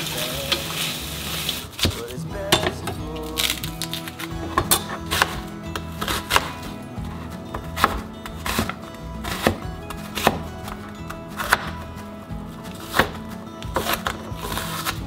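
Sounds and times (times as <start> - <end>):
knife chopping onion on cutting board: 6.0 - 6.6, 7.8 - 10.5, 11.3 - 11.8.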